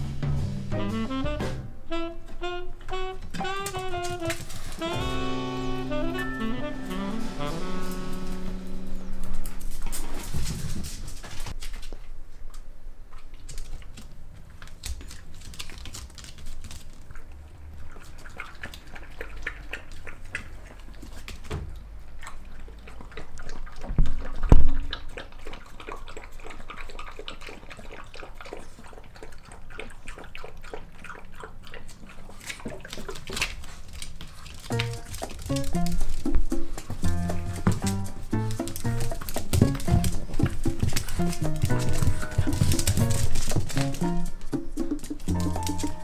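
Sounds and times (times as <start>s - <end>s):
dogs licking and chewing: 13.1s - 46.0s.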